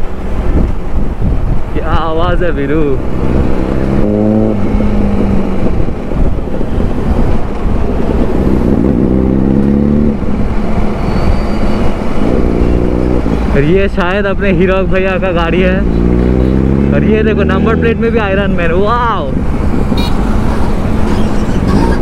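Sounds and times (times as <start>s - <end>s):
motorcycle engines running: 0.0s - 22.0s
wind noise on microphone: 0.0s - 22.0s
motorcycle engine revving: 3.0s - 13.6s, 15.5s - 18.4s, 19.4s - 22.0s.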